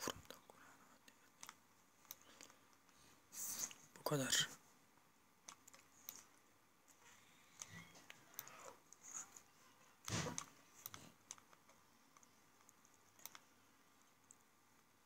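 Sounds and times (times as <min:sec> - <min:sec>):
faint computer clicks: 0:10.0 - 0:13.5.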